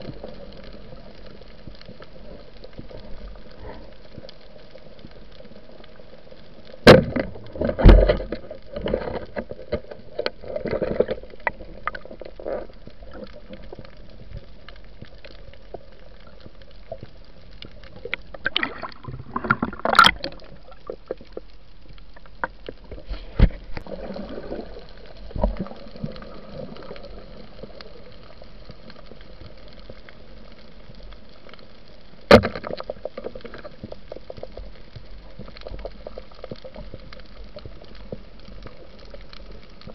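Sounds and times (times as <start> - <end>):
underwater clicks: 0.0 - 30.2, 32.2 - 39.9
splashing and gurgling: 17.9 - 21.3, 22.4 - 27.4.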